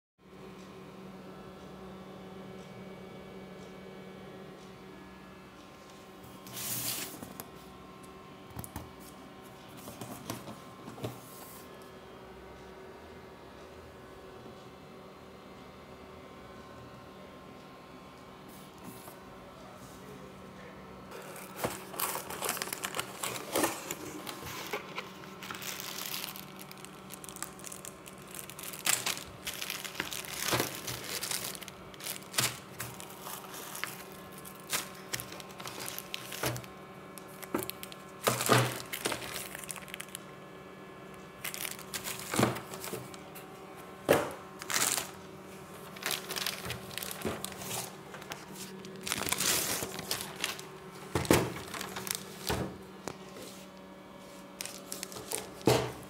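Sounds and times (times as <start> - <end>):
plastic bags crinkling: 21.1 - 40.2, 41.3 - 43.3, 44.6 - 52.8, 54.4 - 56.0.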